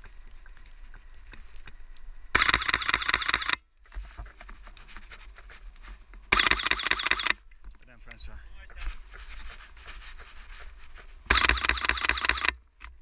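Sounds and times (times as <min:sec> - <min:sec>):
camera shutter bursts: 0:02.4 - 0:03.6, 0:06.3 - 0:07.4, 0:11.3 - 0:12.6.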